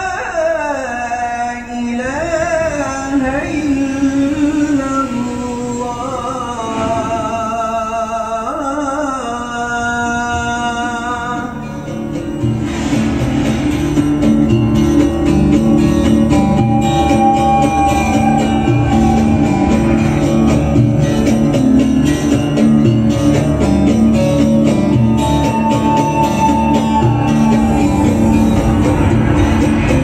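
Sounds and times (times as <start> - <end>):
loud instrumental music: 11.3 - 30.0
steady rhythmic beat: 11.6 - 30.0.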